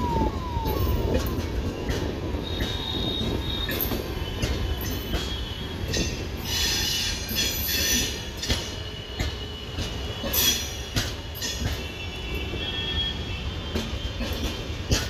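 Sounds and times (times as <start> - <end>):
high-pitched wheel squeal: 0.0 - 1.7
train wheels rumbling on rails: 0.0 - 15.0.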